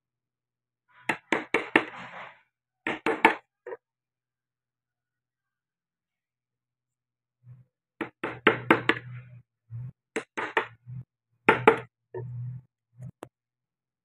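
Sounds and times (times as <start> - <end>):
wooden taps and knocks: 8.0 - 9.2, 11.5 - 12.4.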